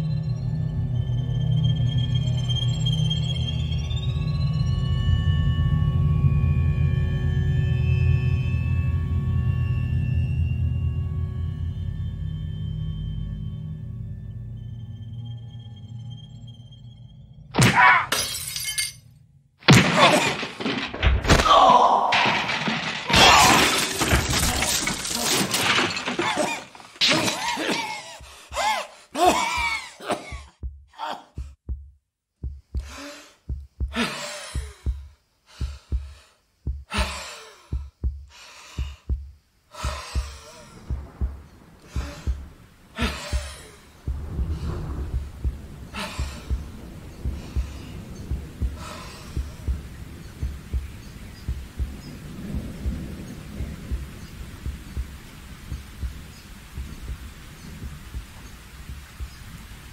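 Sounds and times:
glass shattering: 0:17.6 - 0:19.1, 0:19.7 - 0:28.0
heartbeat thumping: 0:29.4 - 0:59.4
heavy breaths: 0:32.8 - 0:41.0, 0:41.8 - 0:44.9, 0:45.9 - 0:48.1, 0:48.7 - 0:49.9.

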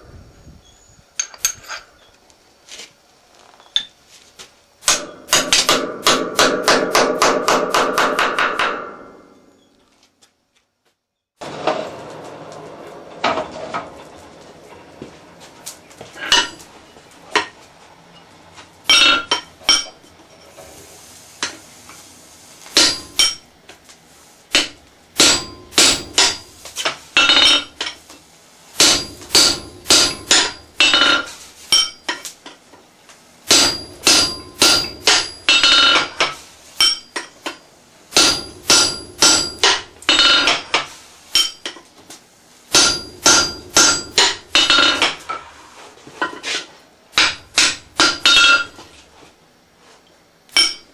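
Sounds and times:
hammer strikes ringing on anvil: 0:22.8 - 0:23.4, 0:24.6 - 0:26.5, 0:28.8 - 0:31.1, 0:31.7 - 0:32.0, 0:33.5 - 0:36.1, 0:36.8 - 0:37.2, 0:38.2 - 0:40.6, 0:42.7 - 0:45.2, 0:50.6 - 0:50.9.

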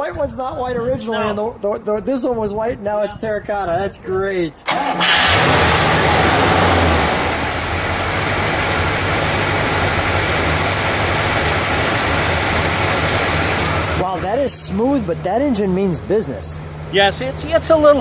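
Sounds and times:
car engine idling: 0:04.6 - 0:18.0.

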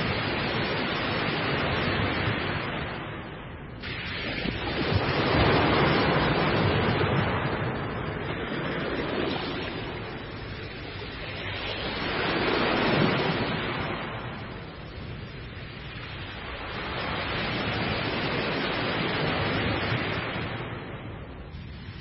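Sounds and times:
waves breaking and washing: 0:00.0 - 0:22.0.

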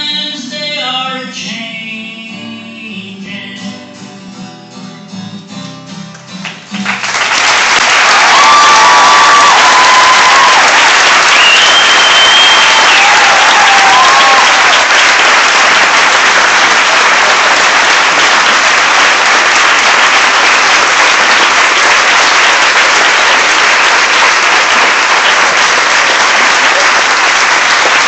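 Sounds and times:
audience applauding: 0:06.4 - 0:28.0
crowd whooping: 0:07.8 - 0:18.4
held whistle: 0:11.3 - 0:13.1.

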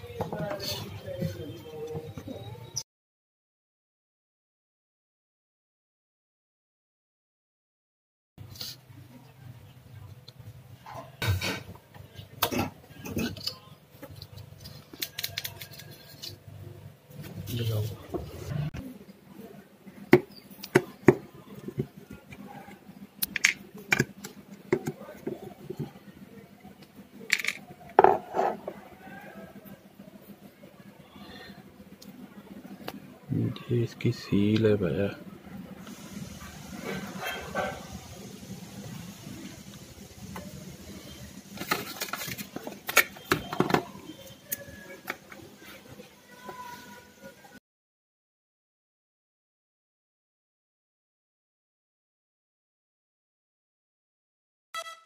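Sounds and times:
plastic parts clicking and rattling: 0:13.2 - 0:16.4, 0:27.3 - 0:27.7, 0:41.6 - 0:43.9.

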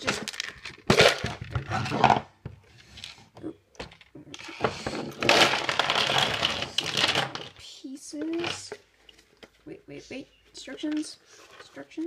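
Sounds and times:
plastic pieces clattering: 0:00.0 - 0:02.3, 0:03.8 - 0:07.6.

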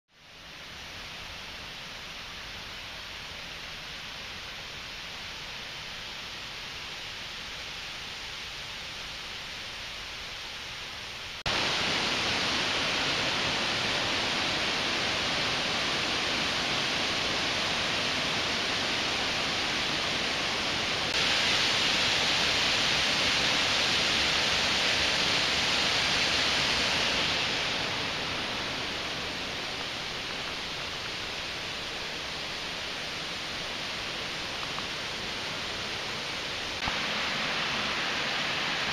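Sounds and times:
rushing water of creek and waterfall: 0:00.2 - 0:38.9.

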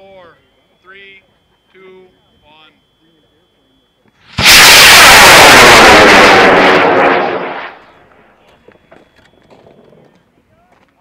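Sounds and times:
rocket motor roaring: 0:04.3 - 0:07.9.

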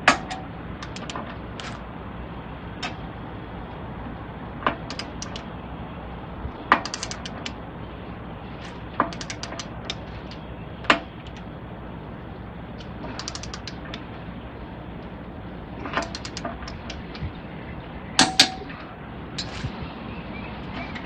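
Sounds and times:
ratchet wrench clicking: 0:00.0 - 0:01.8, 0:04.9 - 0:05.5, 0:06.8 - 0:07.6, 0:09.0 - 0:11.4, 0:12.8 - 0:14.0, 0:16.0 - 0:17.2.

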